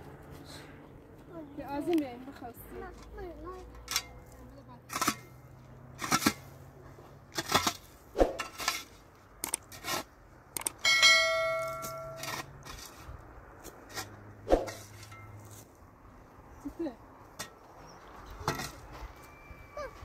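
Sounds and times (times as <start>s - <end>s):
metal shovel scraping stony earth: 3.8s - 15.8s, 18.2s - 19.5s
shovel blade ringing: 10.8s - 12.4s.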